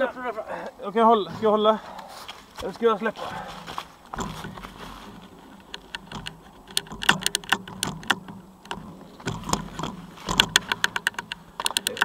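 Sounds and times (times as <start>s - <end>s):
bicycle chain metallic clicks: 5.6s - 12.0s.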